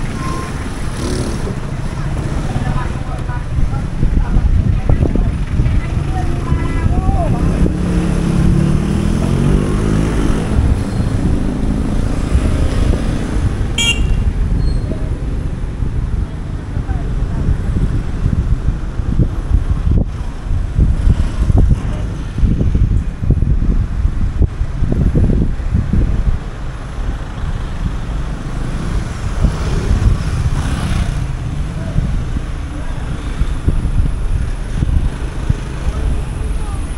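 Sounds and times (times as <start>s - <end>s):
motorcycle engines passing: 0.0s - 36.9s
street traffic: 0.0s - 36.9s
short high horn beep: 13.8s - 14.8s.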